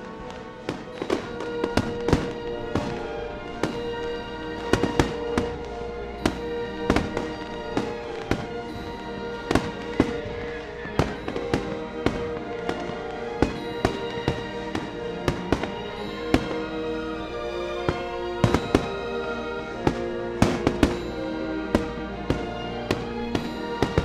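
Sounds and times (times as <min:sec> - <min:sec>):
fireworks banging: 0:00.0 - 0:24.0
music with long held notes: 0:00.0 - 0:24.0.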